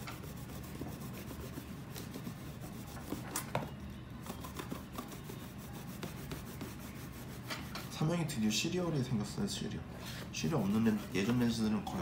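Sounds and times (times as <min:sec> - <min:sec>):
towel rubbing on cardboard: 0:00.0 - 0:03.3, 0:04.9 - 0:07.5.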